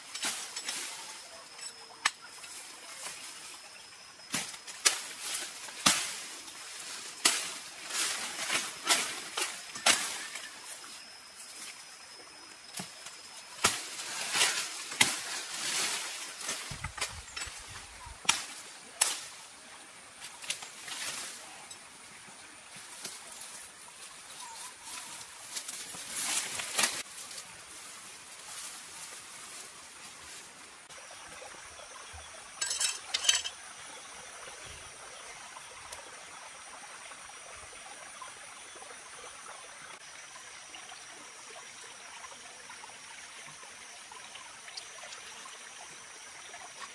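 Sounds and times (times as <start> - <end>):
leaves rustling: 0.0 - 31.2.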